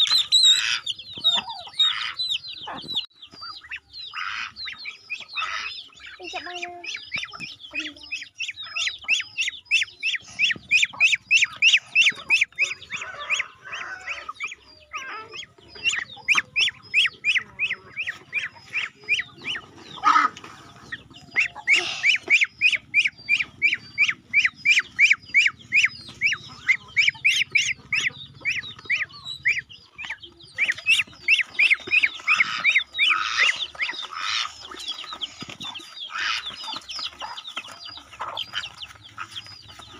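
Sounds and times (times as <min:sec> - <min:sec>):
poultry calling: 0:00.0 - 0:39.9.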